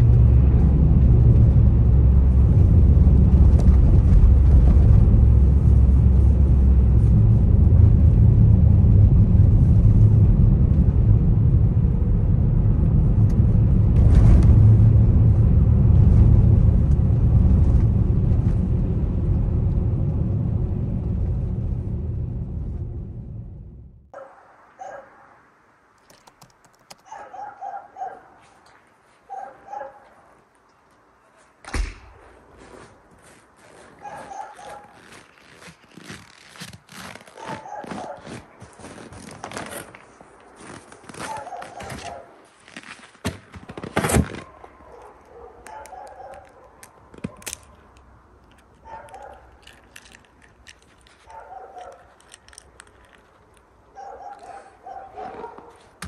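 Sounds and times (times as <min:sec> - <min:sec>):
dog barking: 0:24.2 - 0:25.3, 0:27.0 - 0:28.4, 0:29.3 - 0:30.4, 0:34.0 - 0:35.0, 0:37.4 - 0:38.4, 0:41.2 - 0:42.4, 0:44.4 - 0:47.4, 0:48.8 - 0:49.5, 0:51.3 - 0:52.1, 0:54.0 - 0:55.9
small clicks: 0:25.9 - 0:27.2, 0:45.7 - 0:53.7
loud rustling crunching: 0:32.2 - 0:44.8.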